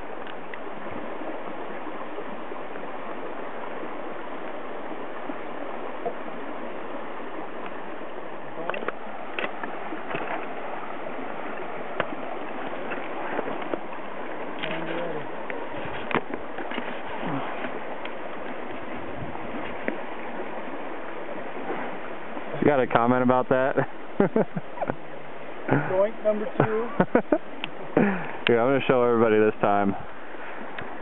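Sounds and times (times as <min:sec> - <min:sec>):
stream water running: 0:00.0 - 0:31.0.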